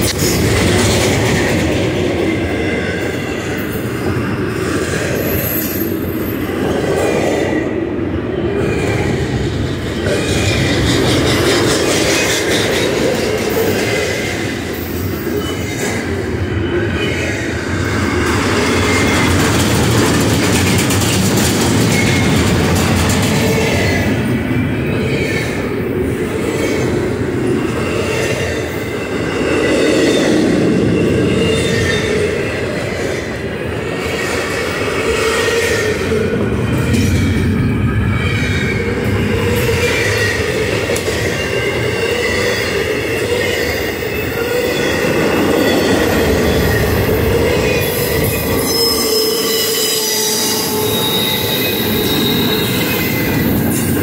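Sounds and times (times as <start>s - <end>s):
freight train wheels rumbling: 0.0s - 54.0s
high wheel squeals: 41.2s - 54.0s.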